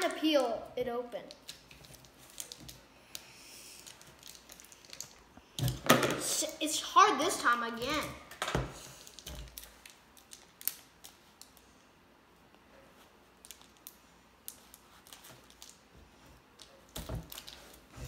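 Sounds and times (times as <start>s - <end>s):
plastic wrapper crinkling: 1.2s - 5.9s, 9.0s - 11.6s, 13.4s - 15.9s, 16.6s - 17.9s.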